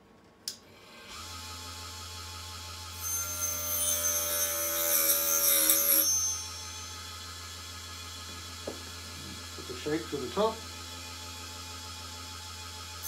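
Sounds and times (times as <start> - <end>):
small electric motor humming: 0.8 - 13.0
saw blade cutting wood: 2.9 - 7.4.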